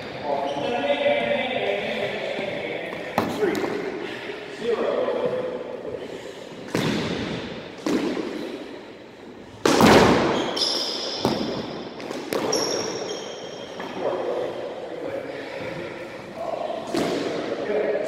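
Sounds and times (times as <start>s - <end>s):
shoes squeaking on wooden floor: 12.4s - 13.9s.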